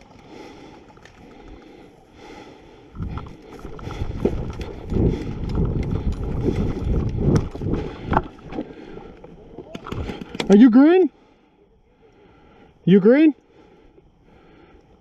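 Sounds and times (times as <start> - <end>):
running footsteps in grass: 3.0 - 8.5.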